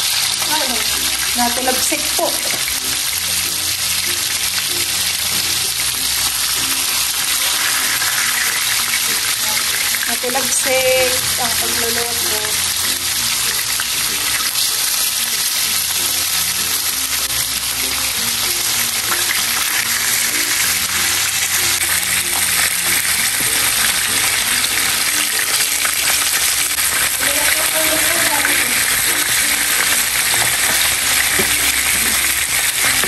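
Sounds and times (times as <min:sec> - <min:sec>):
fish frying in oil: 0:00.0 - 0:33.0.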